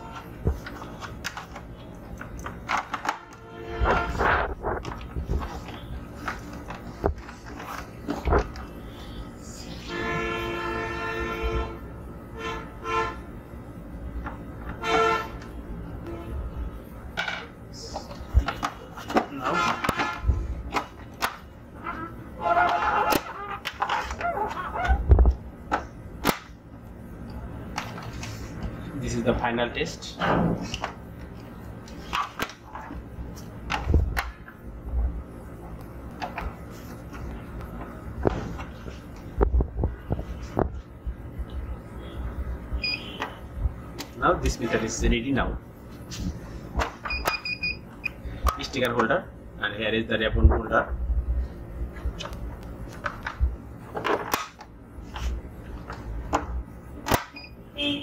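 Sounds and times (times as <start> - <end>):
horn blasts: 3.1 - 4.4, 9.8 - 13.3, 14.8 - 16.6, 19.3 - 20.4.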